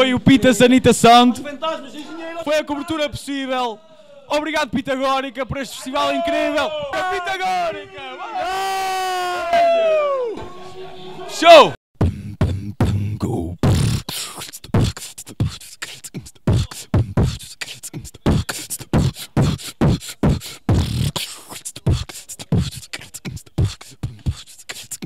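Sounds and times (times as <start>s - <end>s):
beatboxing kick and snare: 12.0s - 25.0s.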